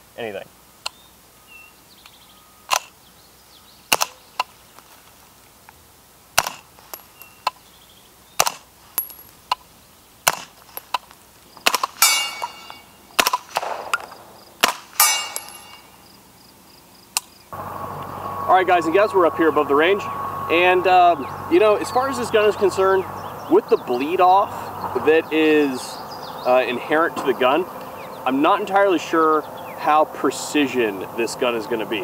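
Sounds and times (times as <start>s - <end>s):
suppressed gunshots: 3.9s - 4.2s, 6.4s - 6.7s, 10.2s - 10.6s, 11.6s - 15.5s
metallic ringing: 12.0s - 13.2s, 14.9s - 16.2s.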